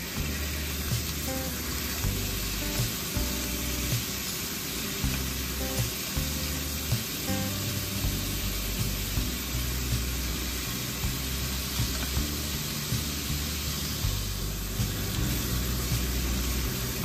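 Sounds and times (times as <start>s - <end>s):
background music with beat: 0.0s - 17.0s
meat sizzling in oil: 0.0s - 17.0s.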